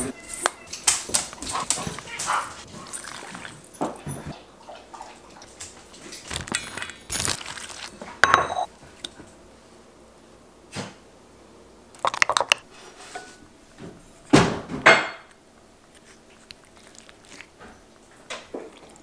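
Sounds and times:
spoons scraping ceramic bowl: 0:00.0 - 0:03.5.

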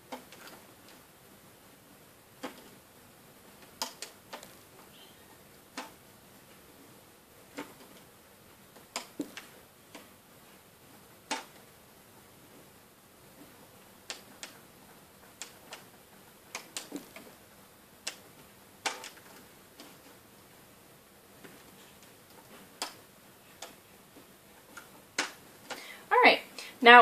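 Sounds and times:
rubber bands snapping against pegs: 0:02.4 - 0:02.8, 0:03.5 - 0:04.6, 0:05.7 - 0:06.0, 0:08.7 - 0:10.2, 0:11.2 - 0:11.7, 0:13.4 - 0:17.4, 0:18.0 - 0:20.1, 0:22.4 - 0:23.8, 0:24.6 - 0:25.8.

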